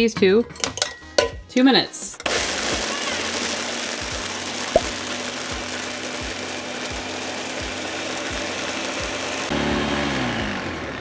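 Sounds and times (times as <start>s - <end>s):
blender whirring: 2.2s - 11.0s.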